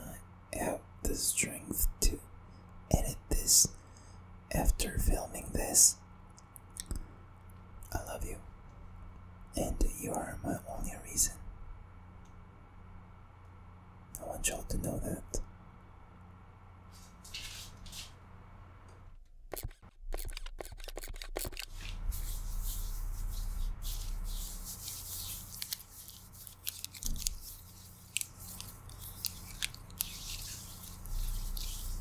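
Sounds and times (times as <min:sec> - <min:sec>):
fake nails clicking and scraping: 0:19.5 - 0:22.0, 0:24.3 - 0:32.0.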